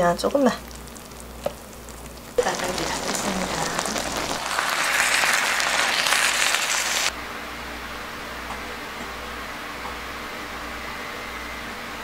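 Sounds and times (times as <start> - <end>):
food sizzling in a pan: 0.3 - 7.1.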